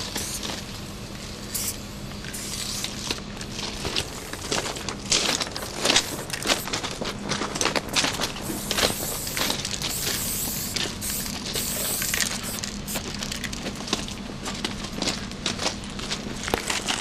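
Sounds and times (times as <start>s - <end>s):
hissing bursts: 1.4s - 2.9s, 8.4s - 13.0s
footsteps on gravel: 2.6s - 17.0s.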